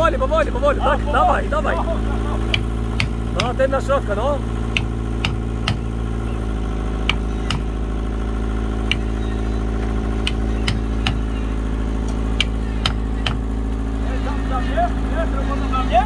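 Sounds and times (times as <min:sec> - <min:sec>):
engine droning: 0:00.0 - 0:16.0
hand tool tapping on wood: 0:02.5 - 0:03.6, 0:04.7 - 0:05.9, 0:07.1 - 0:07.7, 0:10.2 - 0:11.2.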